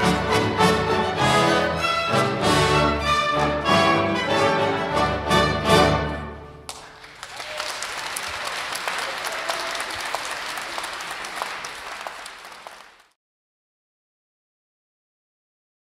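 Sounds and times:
audience applauding: 0:06.7 - 0:13.2.

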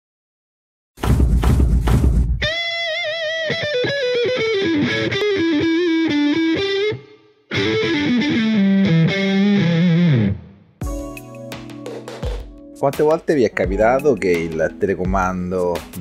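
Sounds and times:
distorted electric guitar lead: 0:02.4 - 0:12.6.

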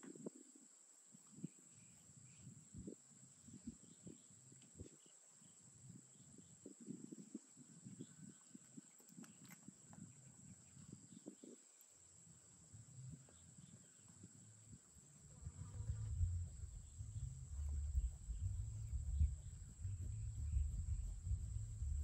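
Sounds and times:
faint low rumbles: 0:12.6 - 0:22.0.

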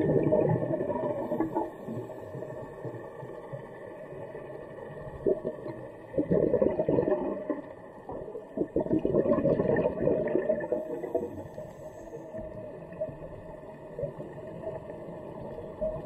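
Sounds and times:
diver exhaling bubbles underwater: 0:00.0 - 0:02.1, 0:05.2 - 0:11.4
faint steady tones: 0:00.0 - 0:06.2, 0:10.3 - 0:16.0
underwater hiss: 0:01.0 - 0:02.8, 0:10.5 - 0:12.9.

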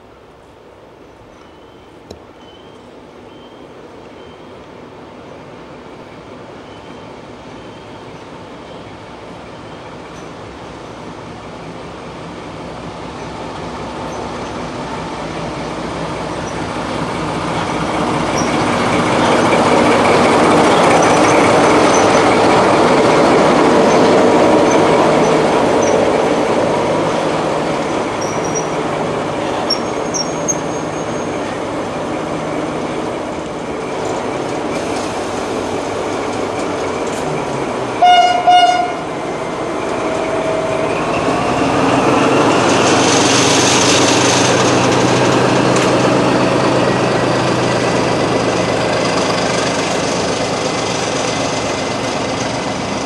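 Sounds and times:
locomotive engine and wheels: 0:00.0 - 0:53.0
faint wheel squeals: 0:29.4 - 0:31.6
train horn blasts: 0:38.0 - 0:39.1.

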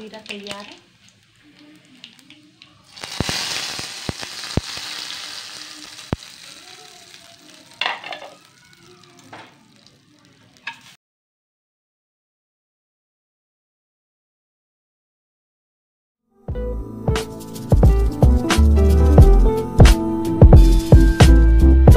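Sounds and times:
hot oil sizzling: 0:00.0 - 0:11.0.

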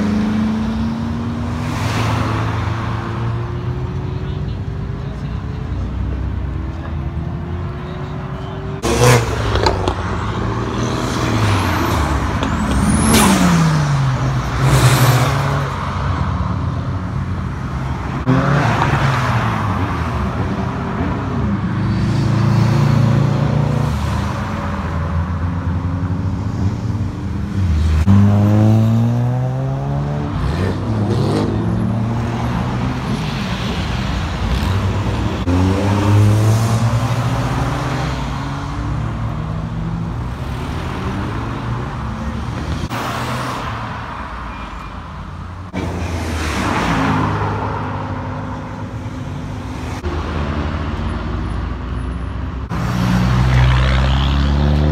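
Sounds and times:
cars revving and driving past: 0:00.0 - 0:54.9.

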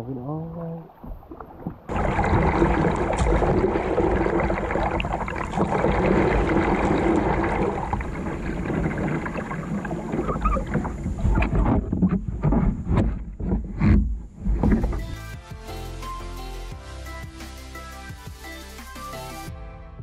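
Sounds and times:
water rushing past kayak: 0:00.5 - 0:15.3.

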